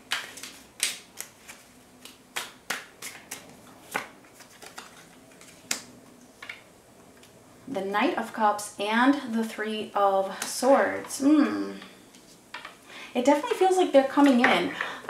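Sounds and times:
cards clicking and snapping: 0.0s - 6.6s.

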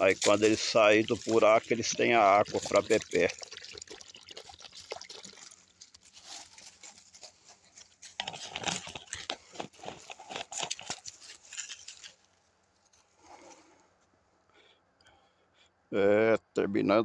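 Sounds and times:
footsteps on dry leaves: 5.8s - 12.3s.

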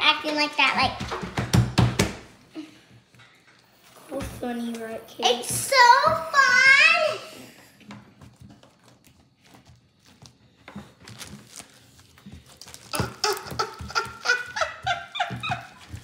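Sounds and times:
child making wordless voice sounds: 4.1s - 7.5s.

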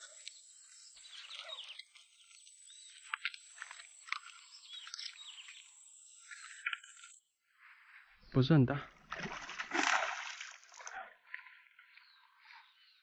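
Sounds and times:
small animals chirping and clicking: 0.0s - 7.2s.

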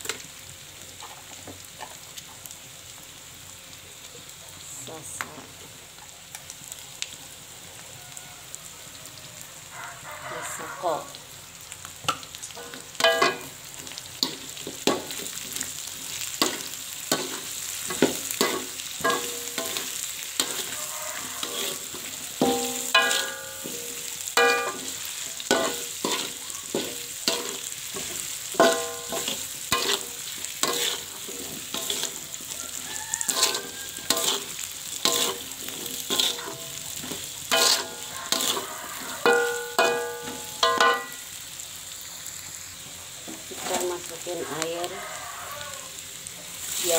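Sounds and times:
hot oil sizzling: 0.0s - 46.9s
wok clanking and ringing: 12.1s - 15.6s, 16.4s - 41.4s
metal spatula scraping a wok: 12.5s - 41.2s, 43.2s - 44.2s.

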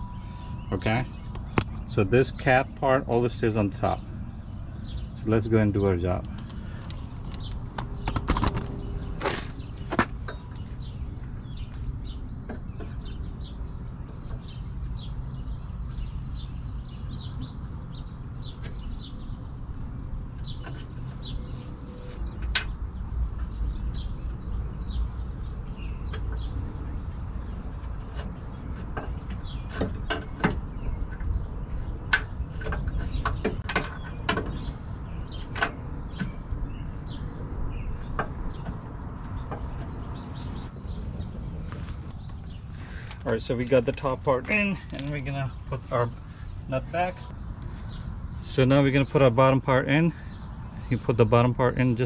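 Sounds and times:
metal clicks and knocks: 32.1s - 34.8s.

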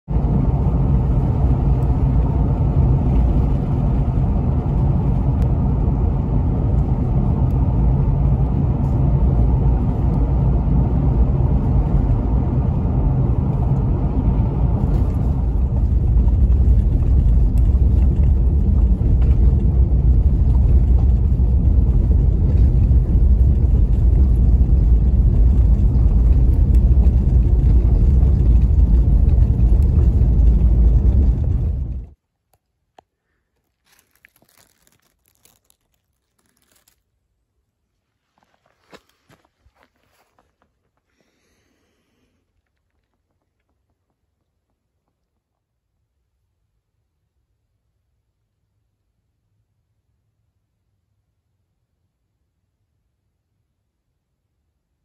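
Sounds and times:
car engine and tyres rumble: 0.0s - 32.2s, 33.4s - 45.9s
engine hum: 0.0s - 32.2s.

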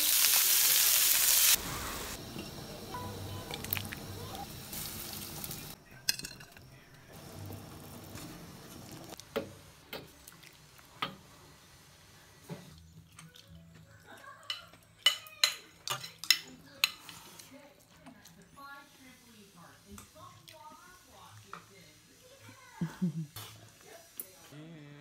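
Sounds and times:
soup boiling and hissing: 0.0s - 5.8s, 6.8s - 13.0s
spoon clinking on plates: 14.5s - 17.1s.

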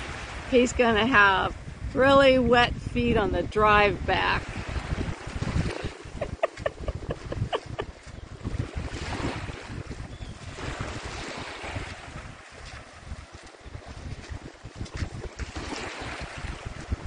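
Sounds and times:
wind buffeting microphone: 0.0s - 17.0s
water sloshing and splashing: 4.2s - 17.0s.

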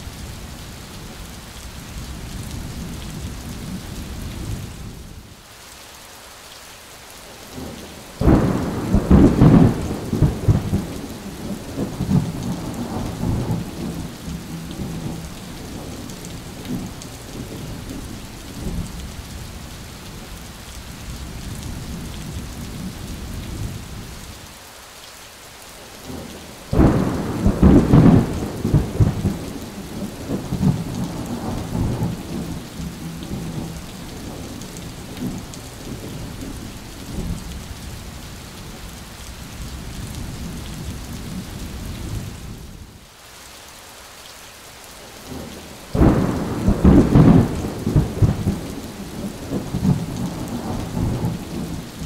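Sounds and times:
rain falling: 0.0s - 52.0s
thunder claps: 8.2s - 17.6s, 26.7s - 34.5s, 46.0s - 51.8s.

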